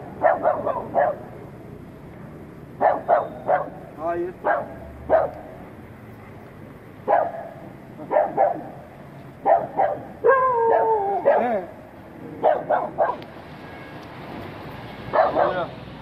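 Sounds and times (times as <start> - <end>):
dogs barking: 0.0 - 1.4, 2.8 - 5.8, 7.0 - 13.3, 15.1 - 15.8
dog whining cry: 9.6 - 13.2.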